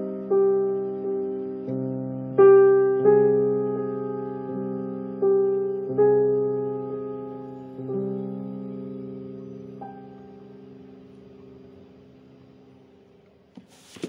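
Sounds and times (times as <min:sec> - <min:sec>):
slow keyboard chords: 0:00.0 - 0:13.5.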